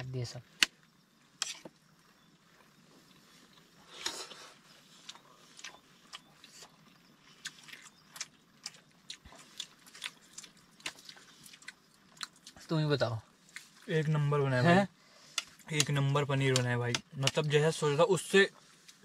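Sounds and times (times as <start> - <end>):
rustle: 0.1 - 16.8, 17.4 - 19.0
chewing: 3.0 - 12.6.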